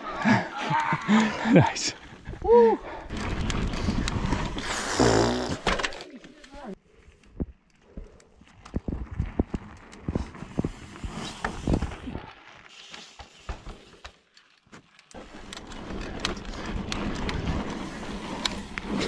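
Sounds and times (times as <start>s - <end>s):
tyre and wind rush: 1.6s - 5.6s, 8.8s - 12.4s, 15.2s - 19.0s
bike rattles: 3.0s - 6.7s, 8.4s - 19.0s.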